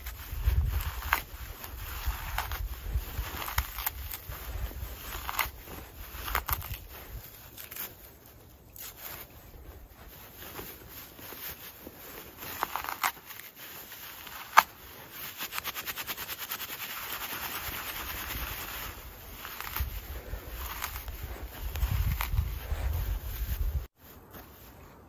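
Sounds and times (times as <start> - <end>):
hands rubbing dry tinder: 8.8 - 24.7.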